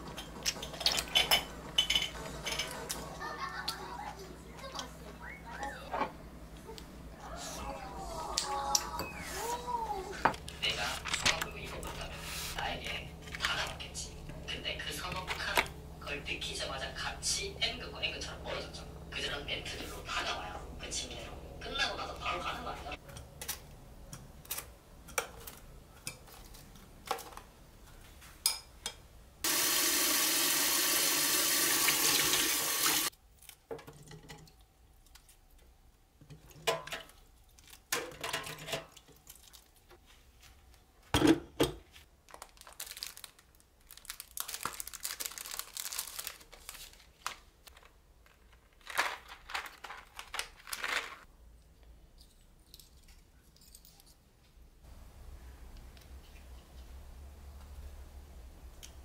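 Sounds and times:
plastic rustling: 41.8s - 51.3s.

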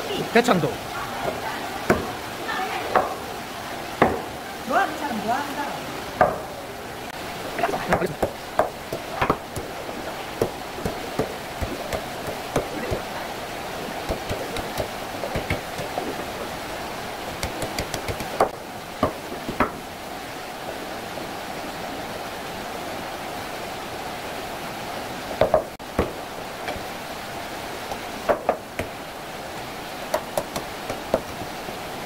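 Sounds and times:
steady hiss: 0.0s - 32.0s
knife chopping on wooden board: 10.4s - 13.1s, 14.1s - 16.0s, 17.4s - 19.8s, 30.1s - 31.4s.

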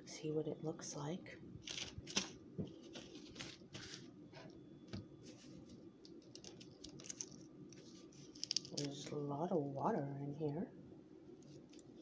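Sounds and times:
eggshell being peeled: 6.0s - 9.1s.

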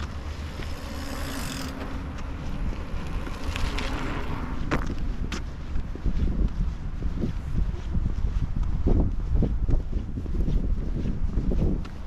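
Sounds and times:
bicycle rolling past: 0.0s - 5.2s
wind rumble on microphone: 0.0s - 12.0s.

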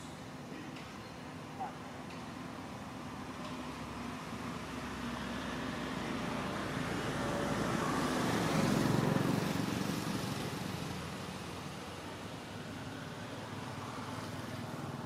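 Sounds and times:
motor vehicle passing by: 3.6s - 15.0s.

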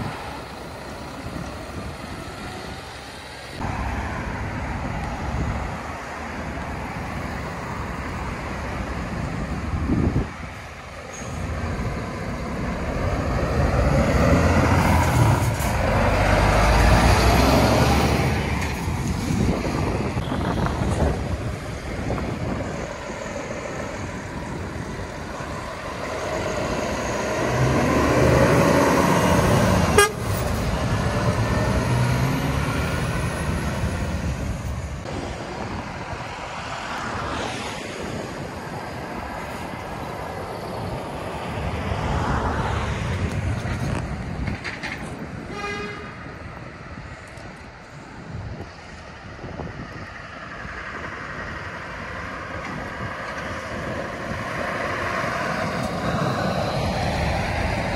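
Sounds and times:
heavy lorries driving past: 0.0s - 57.9s
short horn toot: 30.0s - 30.3s, 45.5s - 46.2s.

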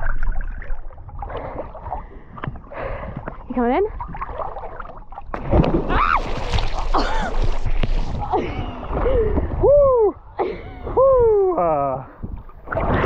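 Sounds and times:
splashing in water: 4.0s - 9.2s.

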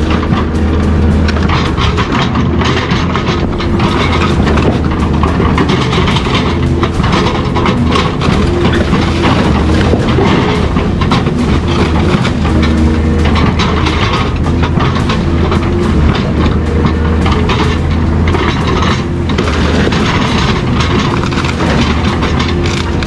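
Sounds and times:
metal clanking and clattering: 0.0s - 23.0s
steady low hum: 0.0s - 23.0s.

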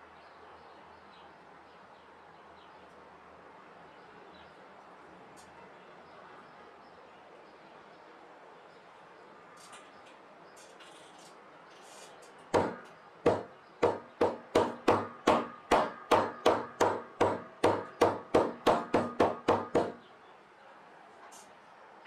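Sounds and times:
plastic mallet knocking leather: 12.6s - 20.0s.

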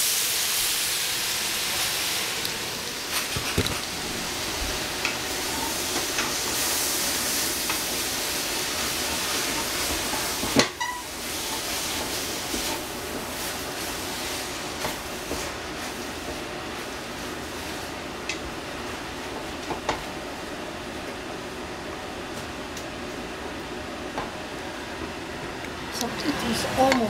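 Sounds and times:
vegetables sizzling in a pan: 0.0s - 20.1s.

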